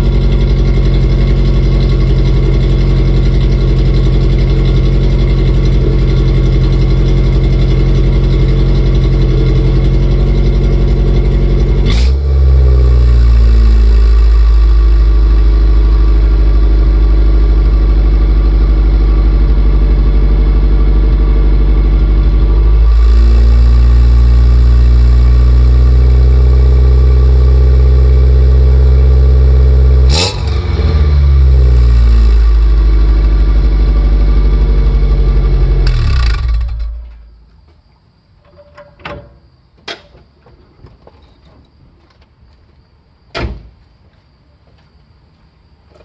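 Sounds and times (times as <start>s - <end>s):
car exhaust idling: 0.0s - 37.4s.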